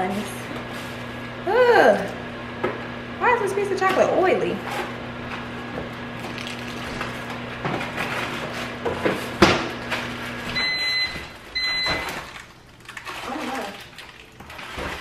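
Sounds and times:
microwave oven humming: 0:00.0 - 0:15.0
microwave beeps: 0:10.4 - 0:12.4.

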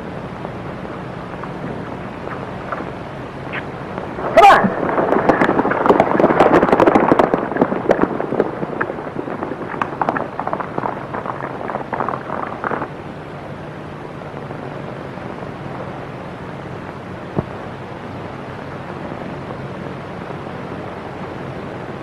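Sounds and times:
film soundtrack hiss: 0:00.0 - 0:22.0
horses galloping hoofbeats: 0:01.3 - 0:12.9.

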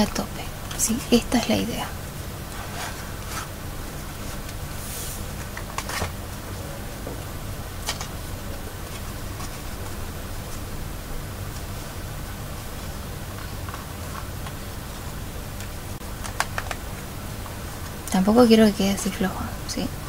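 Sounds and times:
steady low hum: 0:00.0 - 0:20.0
paper booklet rustling: 0:02.5 - 0:06.6, 0:08.8 - 0:10.7, 0:12.7 - 0:17.1.

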